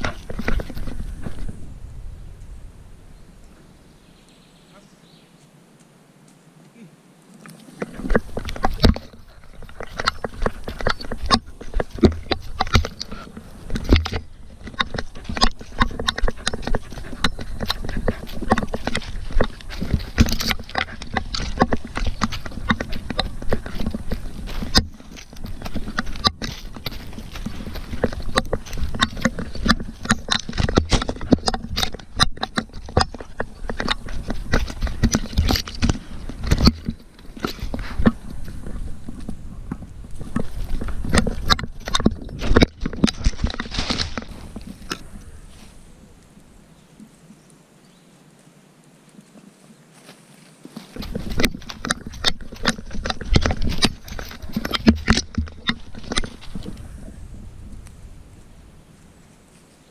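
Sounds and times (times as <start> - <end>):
paws striking forest floor: 0.0 - 1.7, 7.5 - 47.2, 49.0 - 59.8
brushing through undergrowth: 7.3 - 47.6, 48.2 - 59.9.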